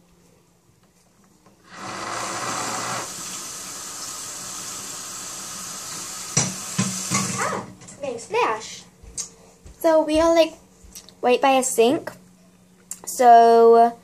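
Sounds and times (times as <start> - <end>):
water running into sink: 1.7 - 7.4.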